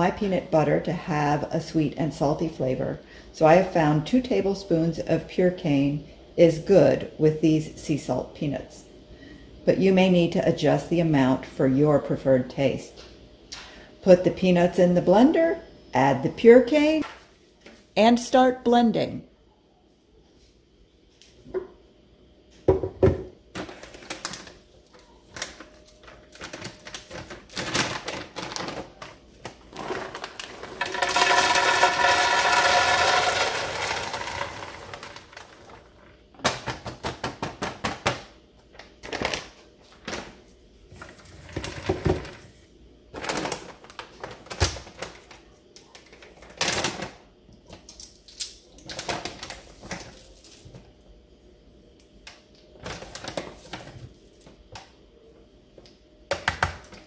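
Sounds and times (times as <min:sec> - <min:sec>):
peanuts rattling into blender pitcher: 0:29.7 - 0:36.0.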